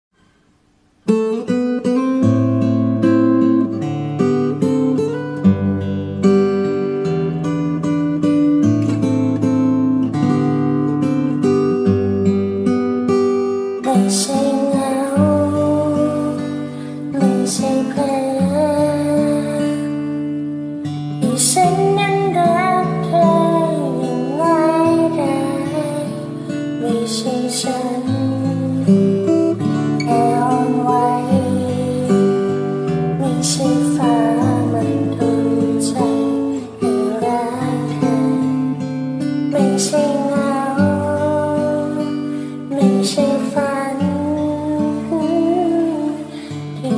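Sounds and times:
acoustic guitar strumming and picking: 0.2 - 46.9
woman singing a slow ballad: 13.8 - 46.9.

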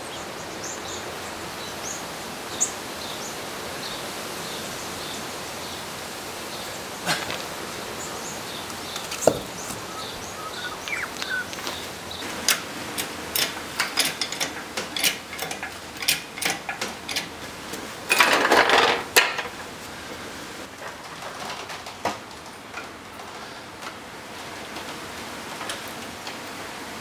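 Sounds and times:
metallic clicks and clanks: 12.5 - 17.4.

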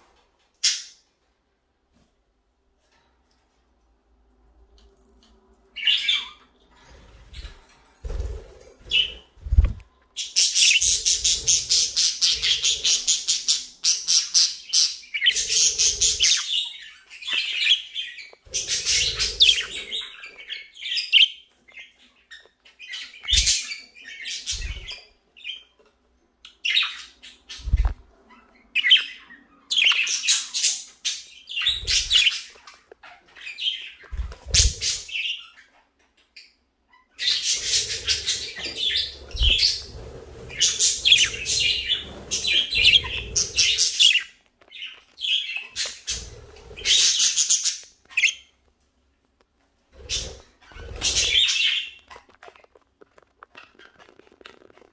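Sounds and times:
budgerigars chattering and chirping: 10.2 - 22.0, 37.0 - 48.5, 50.0 - 52.2.

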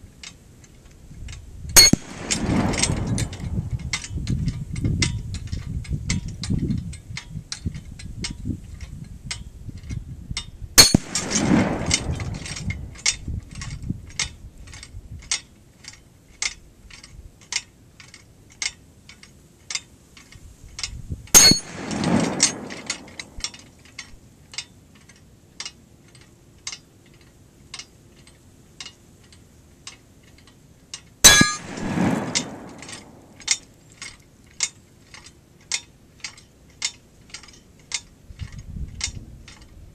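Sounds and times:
bullets clanging on steel plate: 1.8 - 4.1, 10.8 - 13.2, 21.4 - 23.7, 31.2 - 35.3
distant rifle report: 10.8 - 13.0, 21.4 - 23.7, 31.2 - 33.8.

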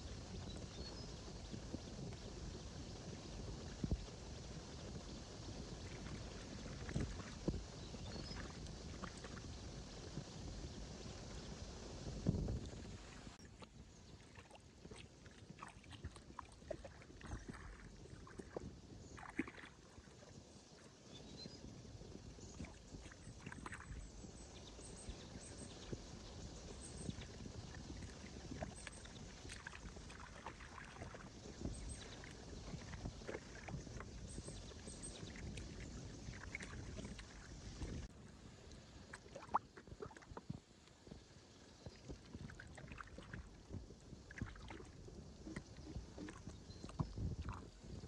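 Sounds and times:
water splashing and sloshing: 5.8 - 9.5, 12.3 - 21.1, 22.4 - 25.7, 26.6 - 41.2, 41.8 - 48.0.

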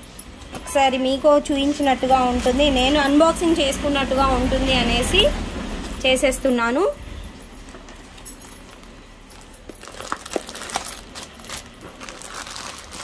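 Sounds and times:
plastic packets crackling: 8.6 - 13.0.

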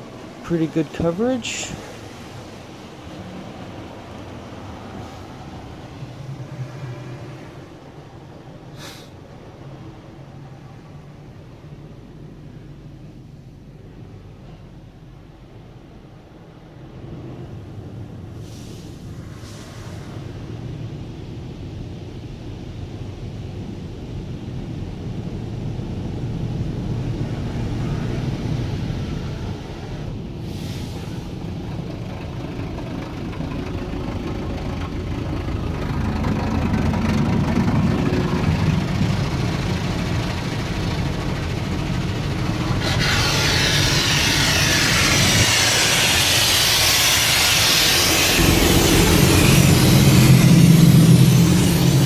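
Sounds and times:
car wash machinery rumble: 0.0 - 52.0
water jets hitting car: 31.4 - 52.0.

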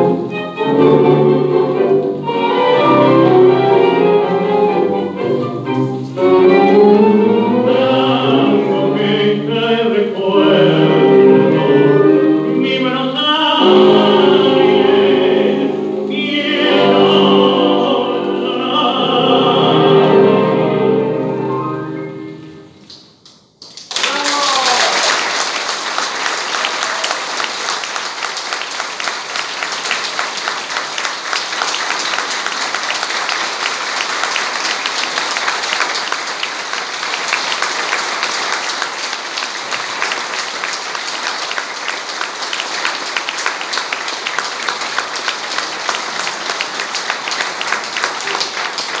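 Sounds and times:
audience applauding: 23.6 - 49.0.

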